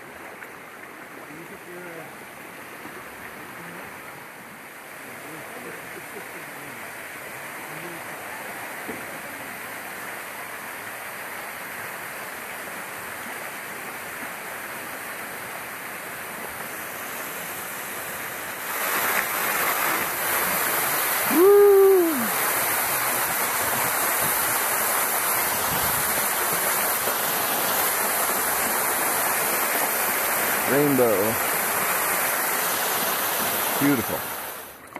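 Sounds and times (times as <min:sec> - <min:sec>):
waterfall splashing into water: 0:00.0 - 0:34.9
short call rising and falling: 0:21.2 - 0:22.4.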